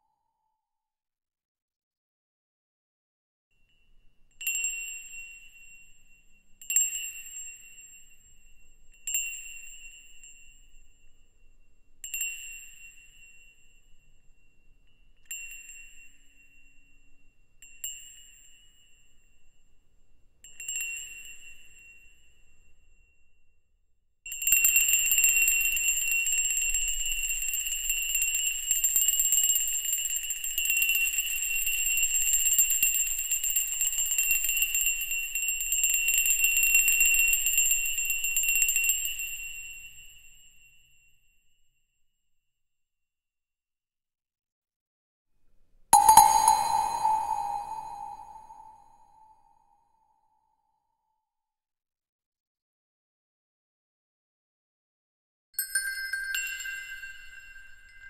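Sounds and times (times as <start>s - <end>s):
small metal bell ringing: 46.0s - 49.2s, 55.6s - 58.0s.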